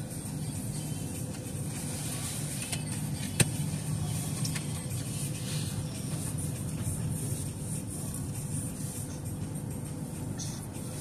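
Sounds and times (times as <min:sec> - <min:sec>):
car engine idling: 0:00.0 - 0:11.0
car wash machinery: 0:00.0 - 0:11.0.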